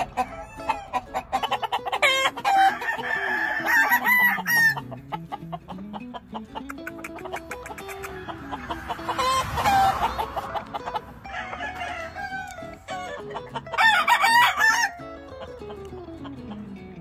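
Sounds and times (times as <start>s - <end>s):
rooster crowing: 0.0s - 4.8s, 7.9s - 15.2s
background music: 0.0s - 17.0s.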